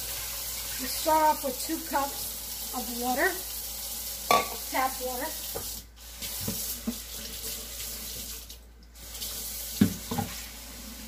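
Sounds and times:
tap water filling a cup: 5.4s - 10.5s.

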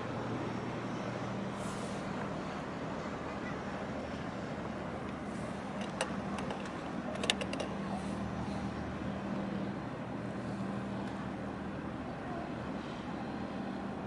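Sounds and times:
harbour noise: 0.0s - 14.0s
low engine hum: 0.0s - 14.0s.

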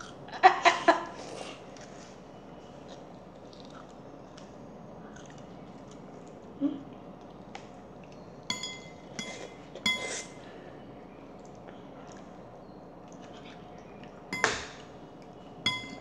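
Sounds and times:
ringing clinks of tableware: 8.5s - 10.1s, 14.4s - 14.6s, 15.7s - 16.0s.

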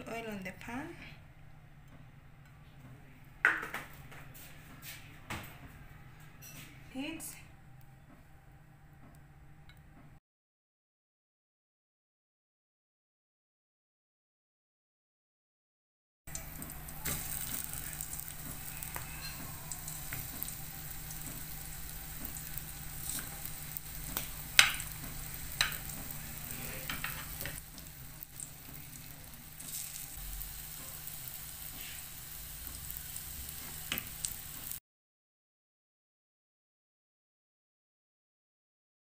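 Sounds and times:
croquettes sizzling in oil: 16.3s - 34.8s.

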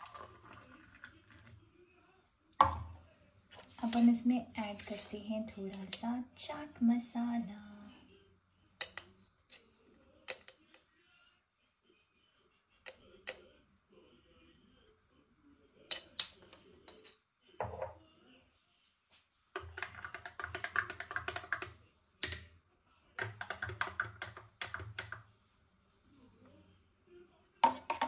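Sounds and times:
metal spoon clinking against glass: 3.6s - 6.1s, 8.8s - 10.8s, 15.9s - 17.2s, 19.6s - 22.5s.

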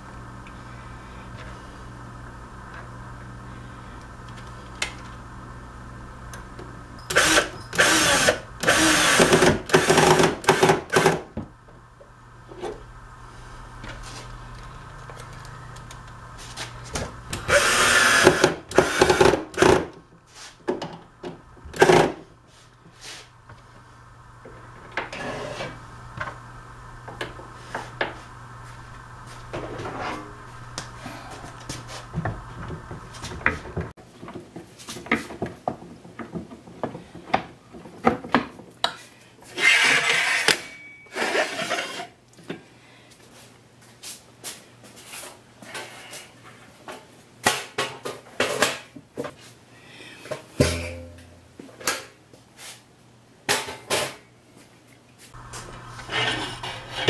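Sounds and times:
steady hum: 0.0s - 34.0s, 50.0s - 52.0s
cordless drill into wood: 7.1s - 11.2s, 17.5s - 19.7s.

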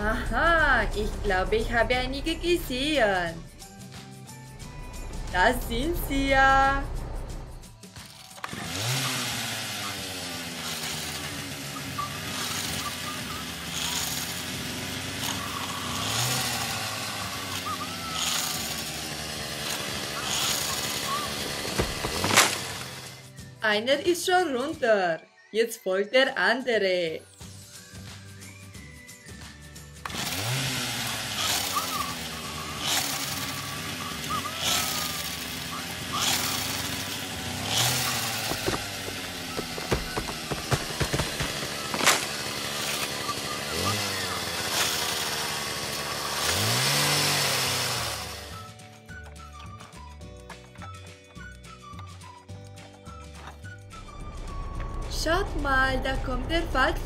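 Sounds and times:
toy engine and buzz-saw effect: 4.6s - 23.5s, 28.8s - 50.0s.

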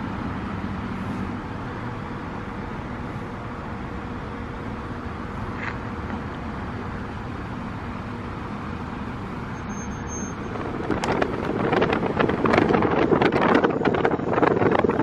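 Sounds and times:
road traffic noise: 0.0s - 15.0s
wind buffeting microphone: 10.4s - 15.0s.

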